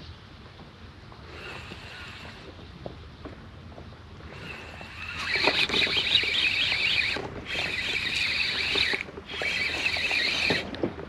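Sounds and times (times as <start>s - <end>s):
squeaking and scraping: 4.3s - 10.9s.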